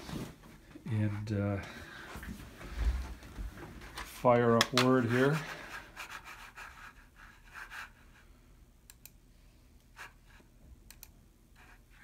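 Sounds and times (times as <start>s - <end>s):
soft handling and rubbing: 0.0s - 8.4s.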